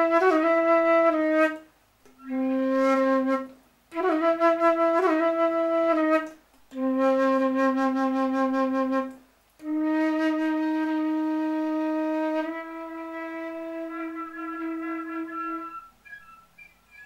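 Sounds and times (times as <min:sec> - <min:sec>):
flute holding low notes: 0:00.0 - 0:17.0.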